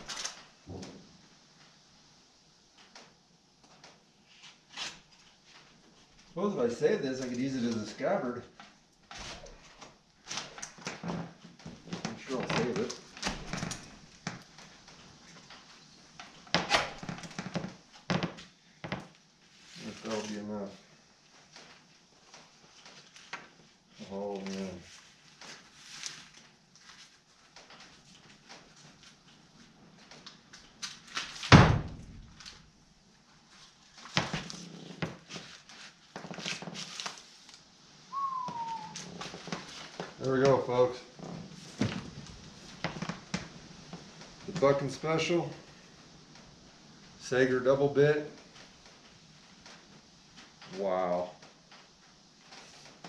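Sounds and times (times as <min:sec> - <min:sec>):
packaging rustling and crinkling: 0:08.6 - 0:32.6, 0:33.2 - 0:47.1
dog whining: 0:38.1 - 0:39.4.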